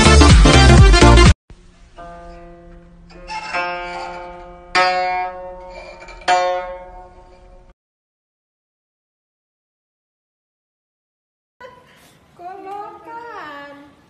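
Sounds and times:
background music: 0:00.0 - 0:01.4
plucked string notes ringing: 0:01.5 - 0:07.7.

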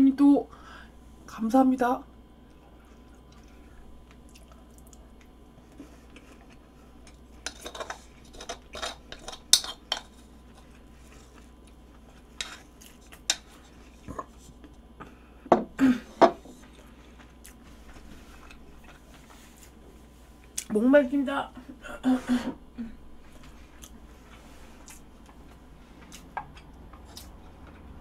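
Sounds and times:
utensils clinking on ceramic bowl: 0:07.4 - 0:10.1.

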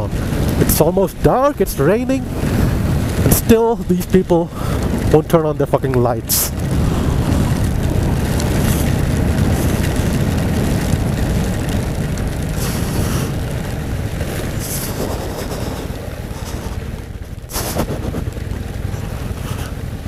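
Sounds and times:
wind on microphone: 0:00.0 - 0:05.4, 0:06.1 - 0:20.0
motorcycle engine running: 0:00.0 - 0:20.0
road spray hiss: 0:06.3 - 0:10.6, 0:12.5 - 0:20.0.

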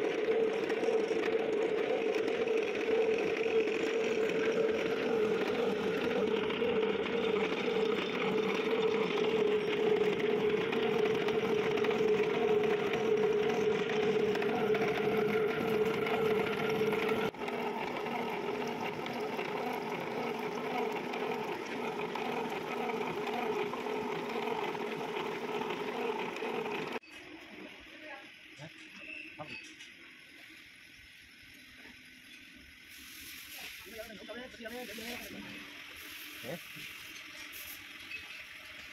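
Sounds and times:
milling machine running: 0:00.0 - 0:27.0.

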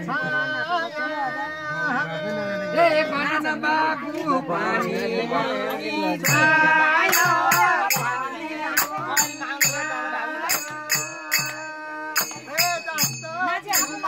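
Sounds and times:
voices singing: 0:00.0 - 0:14.0
hand drum beating: 0:06.2 - 0:14.0
jingling percussion: 0:06.2 - 0:14.0.

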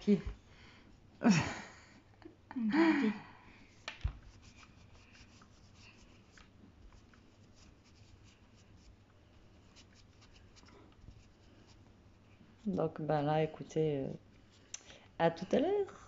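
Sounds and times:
cotton pad rubbing a fingernail: 0:04.2 - 0:09.0, 0:09.6 - 0:11.8.

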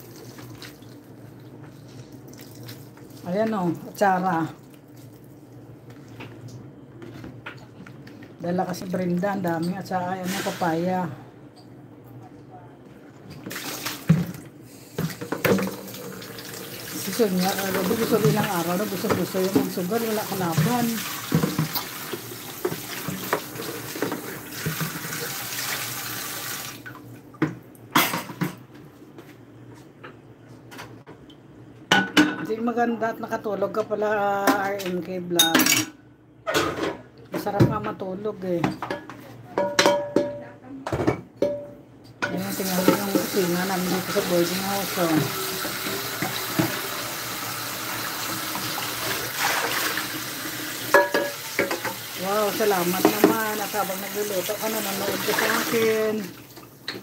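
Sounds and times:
tap water running into sink: 0:15.1 - 0:26.9, 0:42.4 - 0:57.0.

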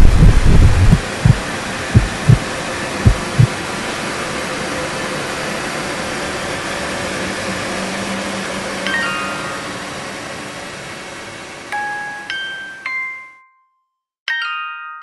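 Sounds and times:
heartbeat-like thumps: 0:00.0 - 0:03.5
hissing drone: 0:00.0 - 0:11.7.

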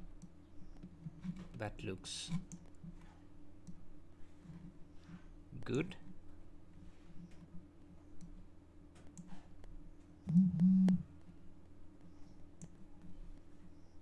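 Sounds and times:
computer mouse clicks: 0:09.1 - 0:09.4, 0:12.6 - 0:12.8
low hum: 0:10.1 - 0:11.6.

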